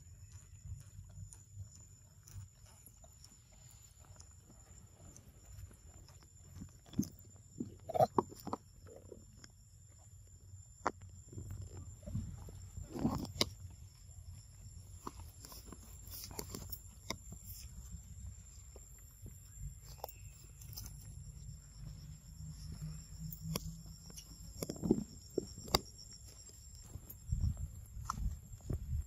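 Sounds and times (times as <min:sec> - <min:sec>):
high insect drone: 0:00.0 - 0:29.0.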